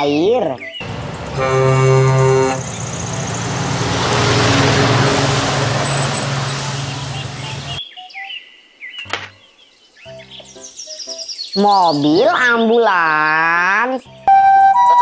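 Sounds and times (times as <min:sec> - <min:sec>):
truck driving past: 0:00.8 - 0:07.8
truck horn blast: 0:00.8 - 0:07.8.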